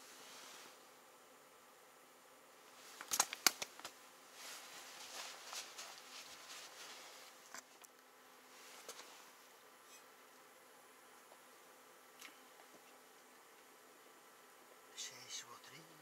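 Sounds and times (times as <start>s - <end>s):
soft rustling: 0.0s - 1.0s, 2.6s - 10.2s.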